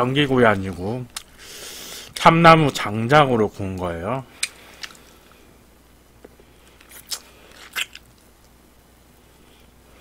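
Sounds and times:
low steady hum: 0.0s - 10.0s
person chewing food: 4.3s - 5.4s, 6.2s - 8.6s.

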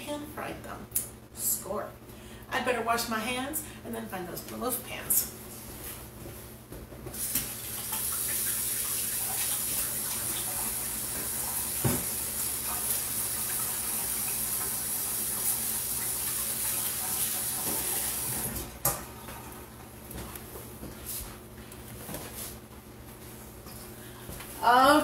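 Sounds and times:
faucet running into sink: 7.3s - 18.7s.

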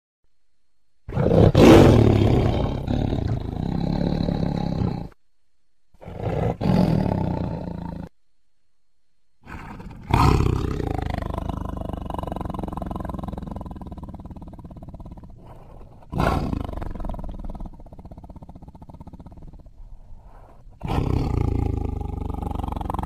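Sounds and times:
tiger roaring: 1.1s - 5.2s, 6.0s - 8.1s, 9.4s - 23.0s.

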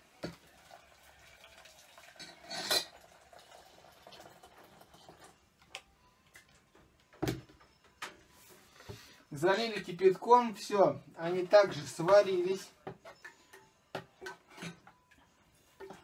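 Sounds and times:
water pouring into a pot: 0.0s - 5.5s.

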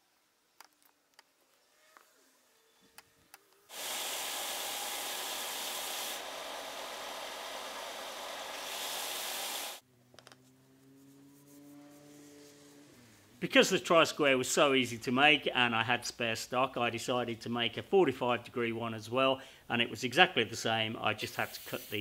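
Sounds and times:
belt sander sanding wood: 3.7s - 9.8s.

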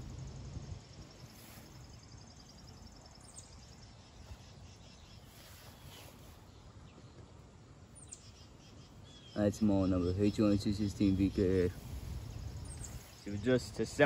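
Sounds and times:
insect trill: 0.0s - 5.2s
low background rumble: 0.0s - 5.2s
bird chirps: 0.9s - 14.0s.

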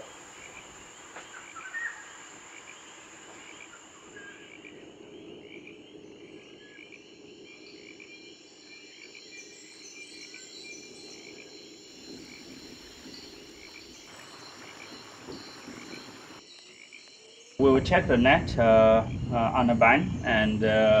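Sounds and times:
frogs croaking: 0.0s - 21.0s
insects whining and chirping: 0.0s - 21.0s.

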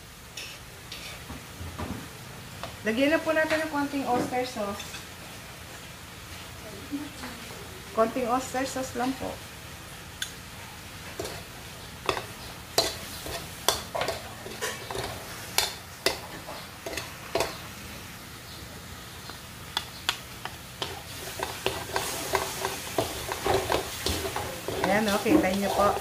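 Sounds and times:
food frying sizzle: 0.0s - 26.0s
spatula scraping metal wok: 0.4s - 1.2s, 11.2s - 17.5s, 20.8s - 26.0s.

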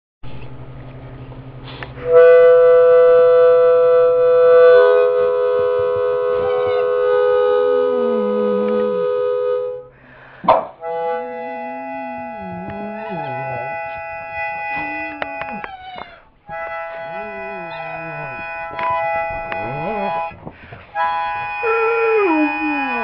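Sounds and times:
harmonica playing held chords: 2.0s - 23.0s
dog howling: 6.1s - 9.2s, 10.8s - 20.3s, 21.6s - 23.0s.

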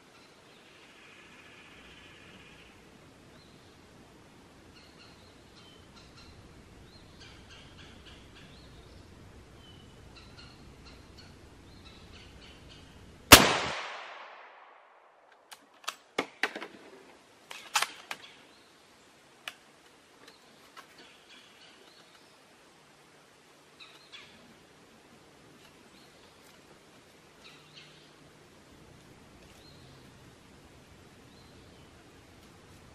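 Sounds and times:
bird chirps: 4.7s - 13.0s
rifle shot: 13.3s - 15.3s.

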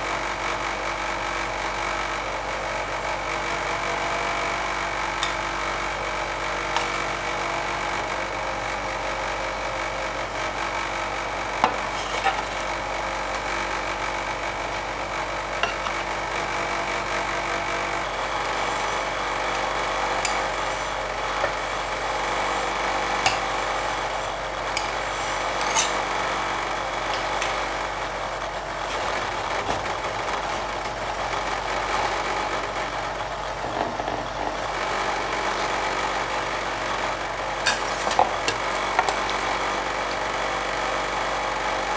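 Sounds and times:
ice cream machine humming: 0.0s - 41.9s
metal spatulas scraping cold plate: 11.7s - 12.5s, 24.8s - 26.0s, 37.6s - 38.6s.

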